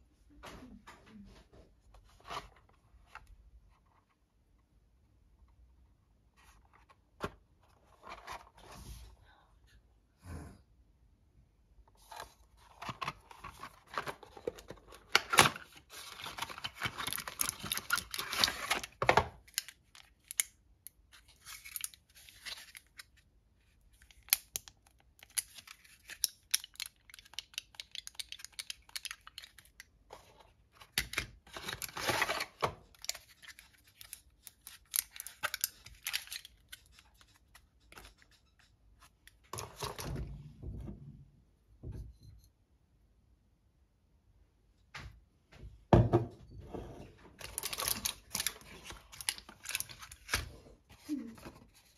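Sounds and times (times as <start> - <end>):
packaging crinkling and crackling: 12.6 - 20.5, 30.8 - 37.3, 47.4 - 51.9.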